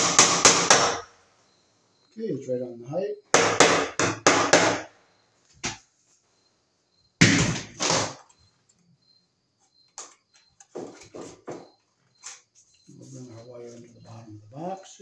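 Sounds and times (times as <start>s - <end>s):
hammer driving nails into wood: 0.0s - 1.1s, 3.3s - 4.9s, 7.2s - 8.3s.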